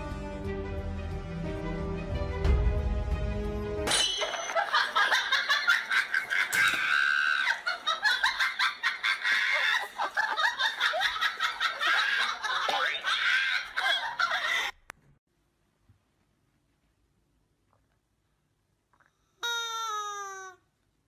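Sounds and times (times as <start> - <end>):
people laughing and giggling: 4.5 - 14.8.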